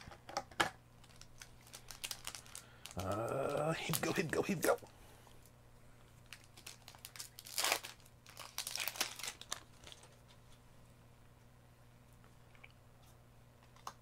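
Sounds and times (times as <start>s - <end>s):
foil wrapper crinkling: 1.0s - 5.0s, 6.2s - 10.5s.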